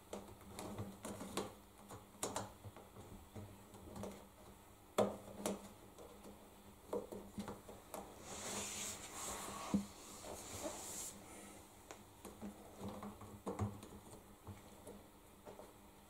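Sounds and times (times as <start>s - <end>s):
rubber rubbing and rustling: 6.9s - 11.4s.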